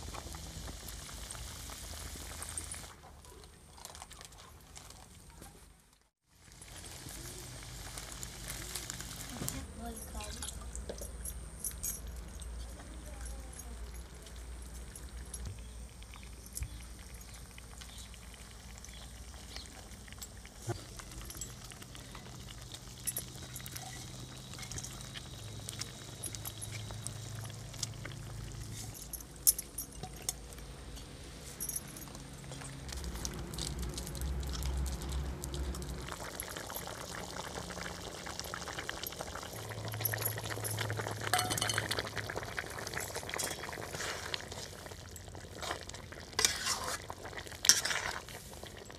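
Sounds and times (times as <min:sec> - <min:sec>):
curry bubbling: 0:06.3 - 0:09.4, 0:13.8 - 0:30.9, 0:32.1 - 0:48.9
steel bowls clinking on pan: 0:40.0 - 0:42.1
metal spatula scraping: 0:46.4 - 0:48.4.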